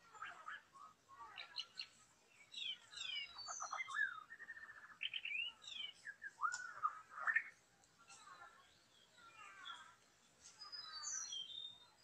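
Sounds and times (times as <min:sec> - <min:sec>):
bird singing whistled phrases: 0:02.5 - 0:07.5.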